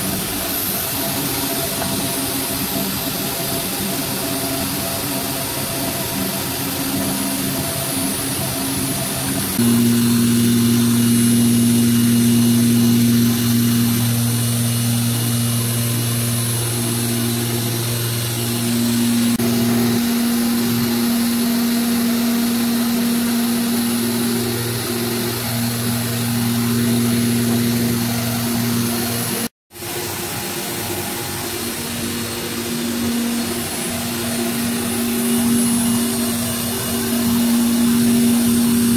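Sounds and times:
router spindle cutting plastic: 8.3s - 29.5s.

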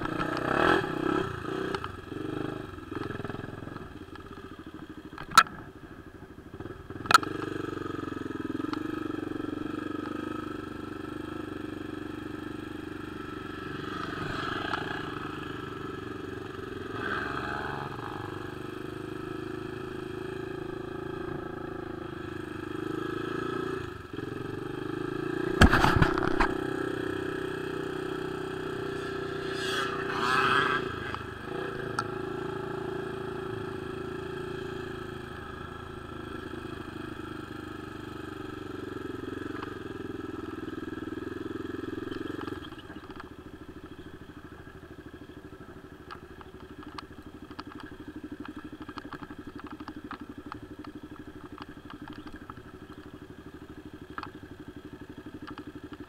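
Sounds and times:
atv engine running: 0.0s - 56.0s
small knocks and clicks: 46.1s - 53.1s.

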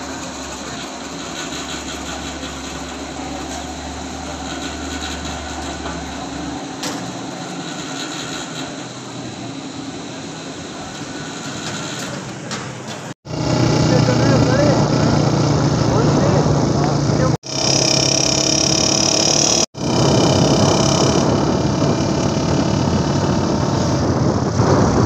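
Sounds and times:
fuel pump humming and hissing: 0.0s - 25.0s
low drone: 13.3s - 25.0s.

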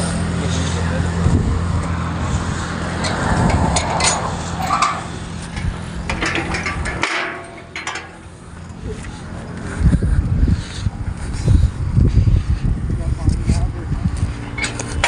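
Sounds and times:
metal gate clanks: 3.0s - 8.2s, 14.5s - 15.0s.

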